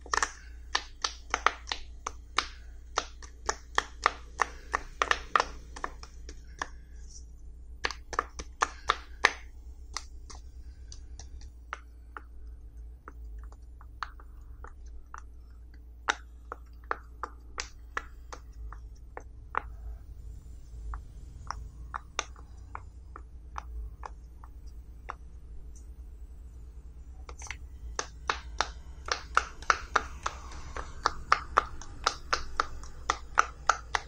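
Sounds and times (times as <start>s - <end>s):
fidget toy bubbles popping: 27.3s - 34.0s.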